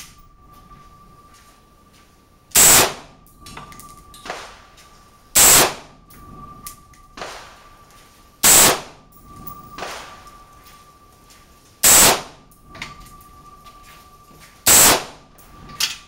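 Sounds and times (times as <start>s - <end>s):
rifle shots with echo: 2.6s - 3.1s, 4.2s - 4.8s, 5.4s - 6.0s, 7.2s - 7.8s, 8.4s - 9.0s, 9.8s - 10.3s, 11.8s - 12.4s, 14.7s - 15.2s.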